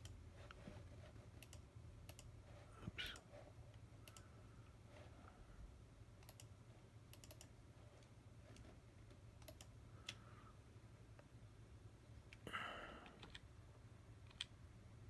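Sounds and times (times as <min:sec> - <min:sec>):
low steady hum: 0:00.0 - 0:15.0
computer mouse clicks: 0:01.3 - 0:02.4, 0:03.0 - 0:04.3, 0:06.2 - 0:08.8, 0:09.4 - 0:10.2, 0:13.1 - 0:13.5, 0:14.2 - 0:14.6.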